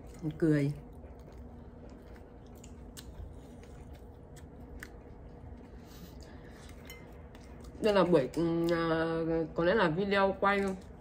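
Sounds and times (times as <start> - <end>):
chewing sandwich: 0.0 - 7.9.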